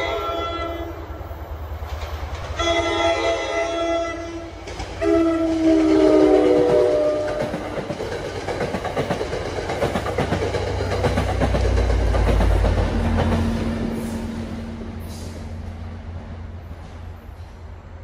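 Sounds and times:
train horn: 0:00.0 - 0:01.2, 0:02.6 - 0:07.8
train rolling noise: 0:00.0 - 0:18.0
locomotive engine rumble: 0:04.5 - 0:18.0
train wheel clicks over rail joints: 0:04.6 - 0:05.7, 0:07.2 - 0:13.5.

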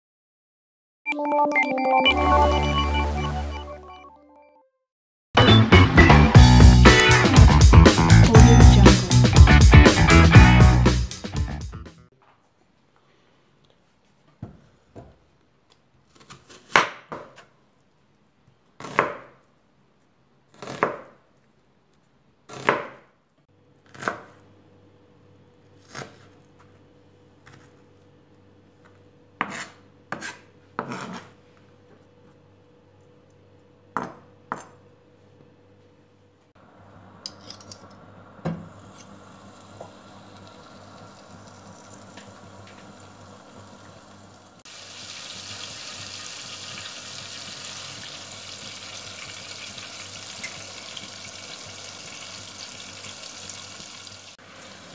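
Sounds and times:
knife chopping on cutting board: 0:16.1 - 0:17.4, 0:18.8 - 0:19.4, 0:20.5 - 0:21.2, 0:22.5 - 0:23.1, 0:23.9 - 0:24.4
frying pan hissing: 0:38.7 - 0:54.9.

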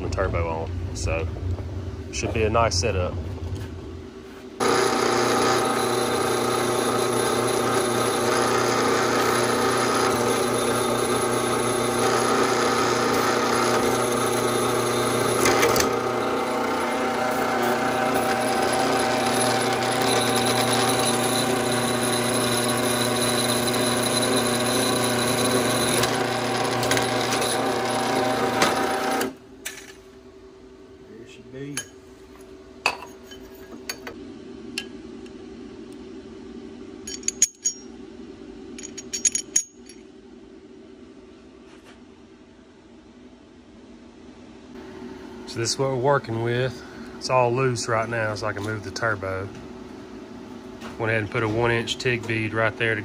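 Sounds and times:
drill press cutting metal: 0:04.6 - 0:29.4
faint steady hum: 0:29.4 - 0:53.0.

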